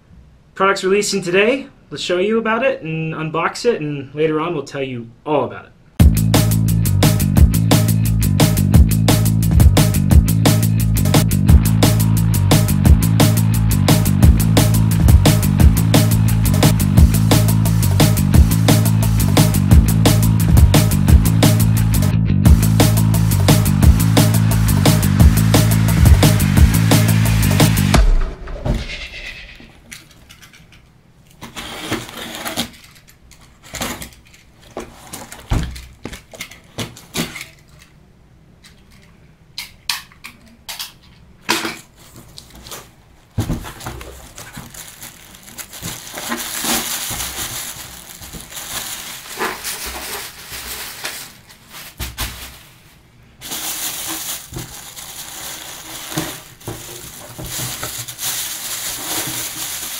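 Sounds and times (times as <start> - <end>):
plastic bags crinkling: 41.9 - 59.9
cardboard knocks and scrapes: 42.1 - 44.8.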